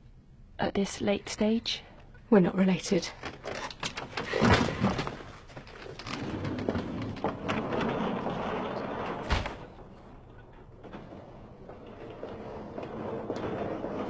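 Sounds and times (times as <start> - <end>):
rustling background noise: 0.7 - 14.0
heavy thump: 9.2 - 9.8.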